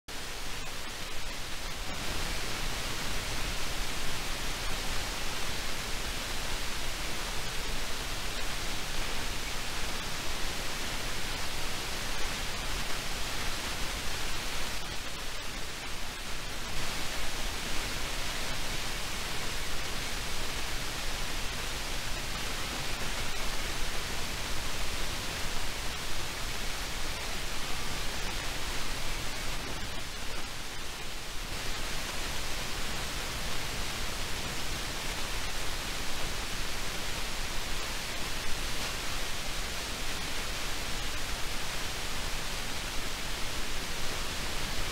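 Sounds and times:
steady hissing noise: 0:00.1 - 0:44.9.

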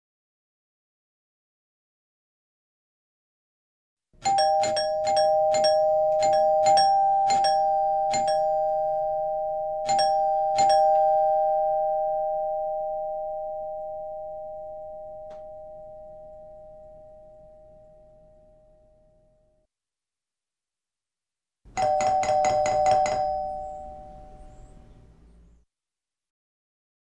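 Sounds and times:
two-tone doorbell chime: 0:04.2 - 0:19.4, 0:21.8 - 0:24.9.

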